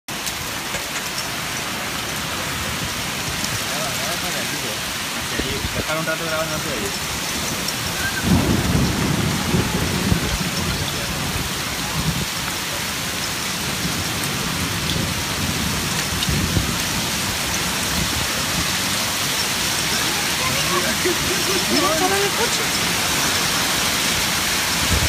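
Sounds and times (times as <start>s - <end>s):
heavy rain falling: 0.1s - 25.0s
low thunder rumbles: 6.6s - 25.0s.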